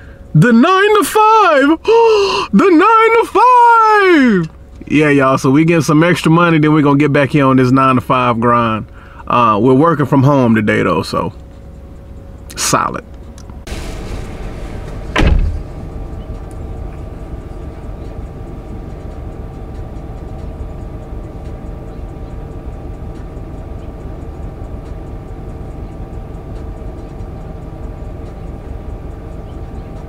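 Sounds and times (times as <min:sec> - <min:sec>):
car engine idling: 0:00.0 - 0:30.0
car door shutting: 0:13.7 - 0:16.9.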